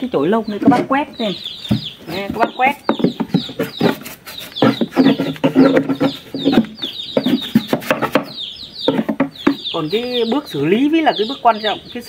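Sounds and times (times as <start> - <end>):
chickens clucking: 0.0 - 12.0
brush scraping wooden box: 1.7 - 9.5.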